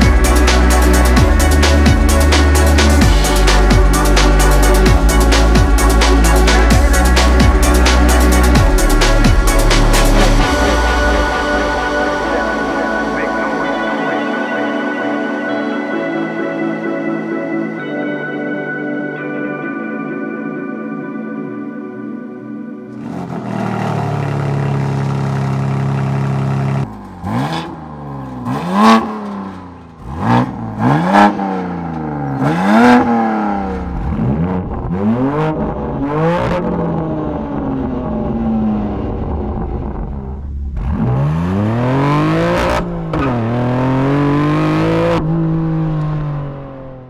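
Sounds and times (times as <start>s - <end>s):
car engine idling: 0.0s - 16.3s, 22.8s - 47.0s
car accelerating away: 22.9s - 47.0s.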